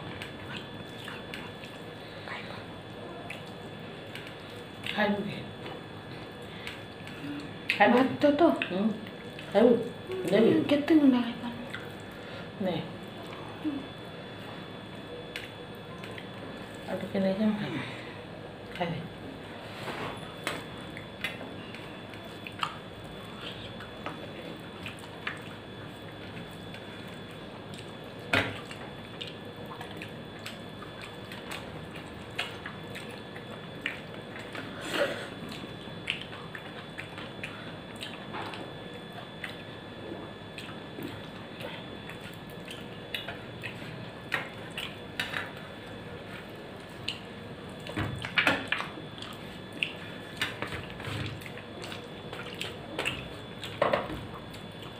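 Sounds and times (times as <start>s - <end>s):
wet chewing: 0.1s - 2.3s, 11.6s - 12.3s, 20.4s - 54.9s.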